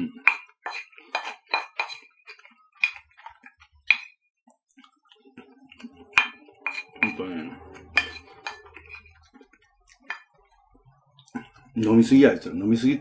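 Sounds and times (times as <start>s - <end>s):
wooden spoon clinking on ceramic plate: 0.2s - 2.1s, 2.8s - 3.1s, 3.9s - 4.2s, 6.1s - 7.2s, 7.8s - 9.2s, 10.0s - 10.3s.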